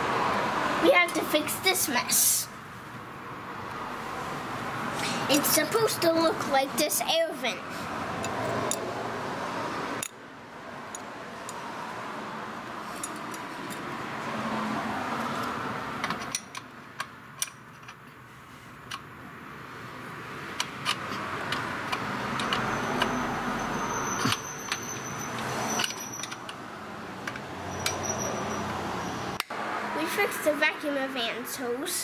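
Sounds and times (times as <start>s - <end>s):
metal tool clicks and clinks: 8.2s - 8.8s, 12.9s - 13.9s.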